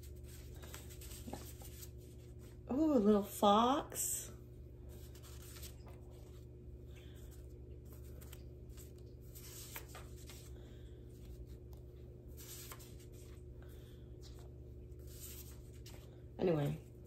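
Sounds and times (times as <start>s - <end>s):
paper rustling and sliding: 0.0s - 2.4s, 4.9s - 6.5s, 7.3s - 11.5s, 12.3s - 13.4s, 14.3s - 16.2s
steady low hum: 0.0s - 17.0s.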